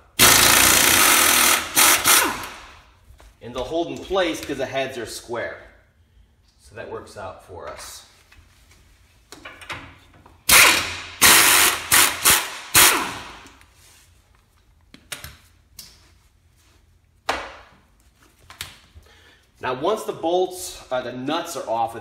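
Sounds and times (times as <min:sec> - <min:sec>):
air-powered wrench bursts: 0:00.2 - 0:02.8, 0:10.5 - 0:13.4.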